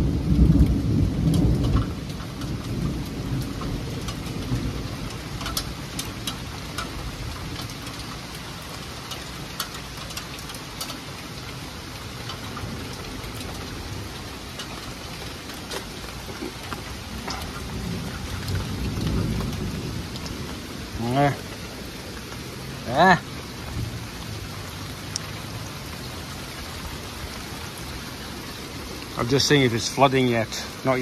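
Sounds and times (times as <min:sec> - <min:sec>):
raindrops tapping: 0:00.0 - 0:31.0
steady rain hiss: 0:00.0 - 0:31.0.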